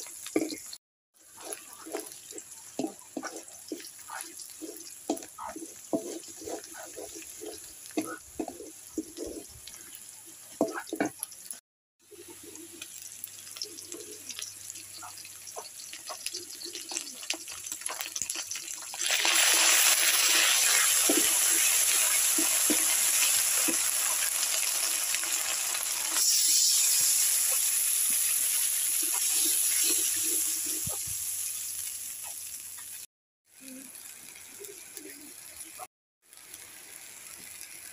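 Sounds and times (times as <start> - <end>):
food sizzling in hot oil: 0.0 - 37.9
wooden spatula scraping wok: 0.3 - 9.6, 20.2 - 24.3.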